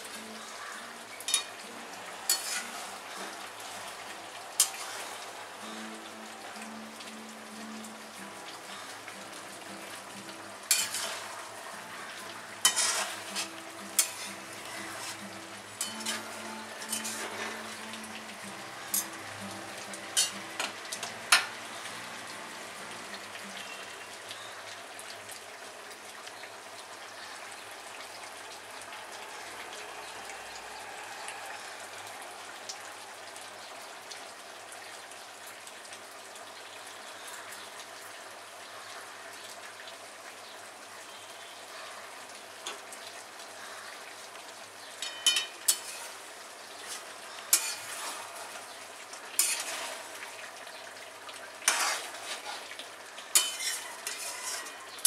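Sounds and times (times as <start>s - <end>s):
food sizzling in a pan: 0.0s - 39.3s, 40.4s - 55.0s
metal spatula scraping a pan: 2.3s - 3.9s, 4.6s - 5.3s, 10.7s - 11.4s, 12.6s - 17.9s, 20.2s - 21.5s, 45.1s - 48.7s, 49.4s - 50.4s, 51.6s - 55.0s.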